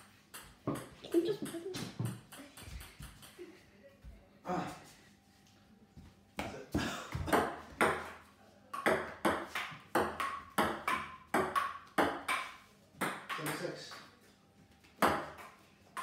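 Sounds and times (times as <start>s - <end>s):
table tennis ball clacking: 0.3s - 3.4s, 8.8s - 13.7s.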